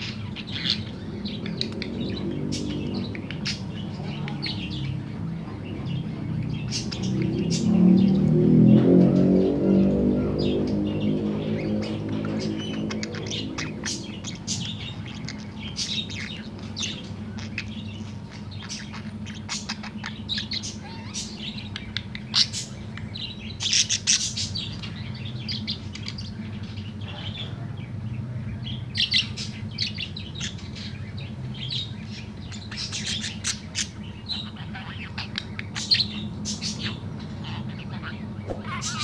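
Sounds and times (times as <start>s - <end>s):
budgerigar warbling: 32.6s - 39.0s.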